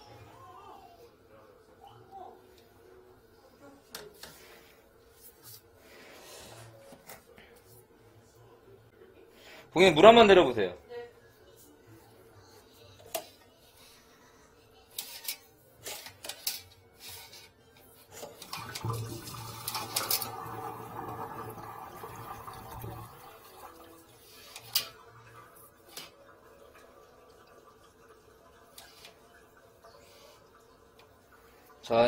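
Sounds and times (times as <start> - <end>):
toilet flushing: 18.1 - 32.0.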